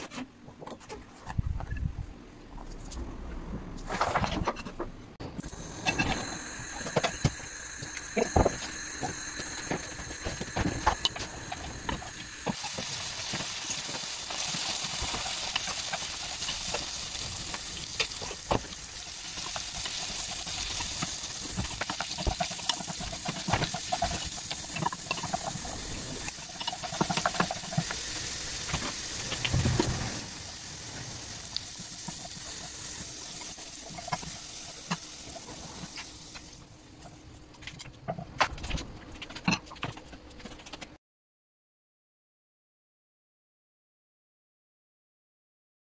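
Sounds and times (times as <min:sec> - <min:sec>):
potatoes sizzling in oil: 0:05.4 - 0:36.8.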